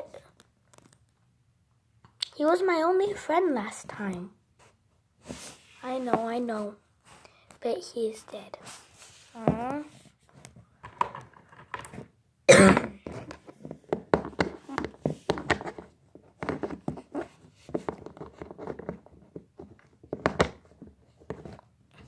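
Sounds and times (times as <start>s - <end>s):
person coughing: 12.5s - 13.0s.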